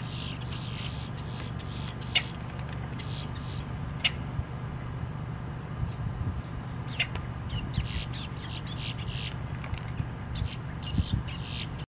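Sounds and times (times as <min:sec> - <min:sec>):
grackle calling: 0:00.0 - 0:04.3, 0:06.8 - 0:11.9.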